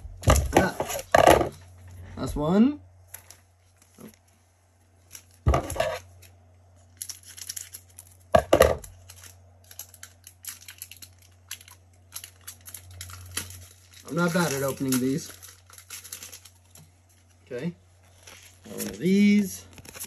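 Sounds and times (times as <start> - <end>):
foil wrapper tearing and crinkling: 5.0 - 17.2, 18.0 - 20.0.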